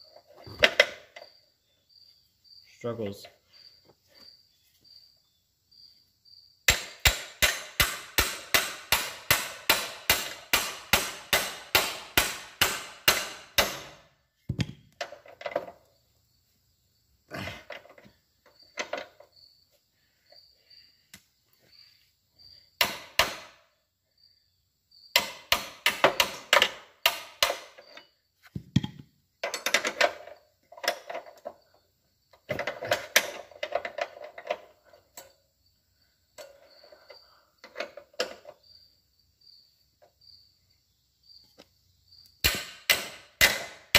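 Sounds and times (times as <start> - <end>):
hammer hitting metal wrench: 6.7 - 14.0, 22.8 - 23.6, 25.2 - 27.9, 42.4 - 43.9.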